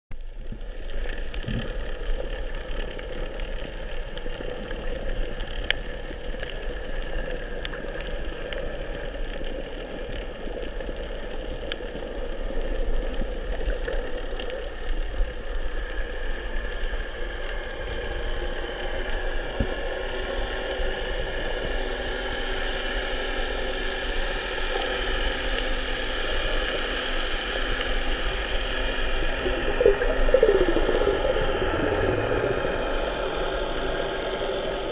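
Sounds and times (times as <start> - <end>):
muffled underwater drone: 0.1 - 34.9.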